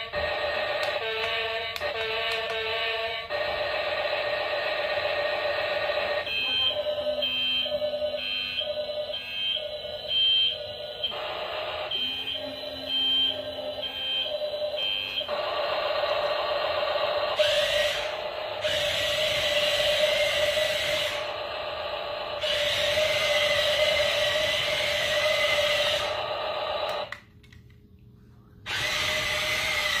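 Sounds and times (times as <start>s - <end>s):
toy buzzing engine effect: 0.0s - 27.2s, 28.7s - 30.0s
warning beep: 11.9s - 15.3s.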